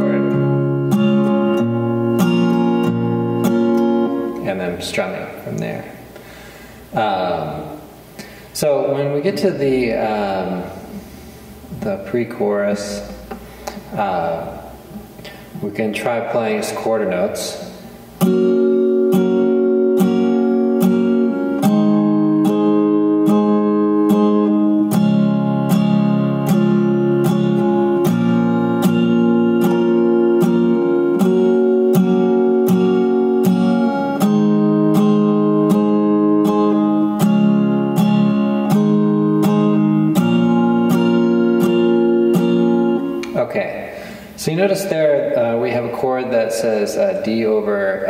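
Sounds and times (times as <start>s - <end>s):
acoustic guitar strumming: 0.0s - 46.5s.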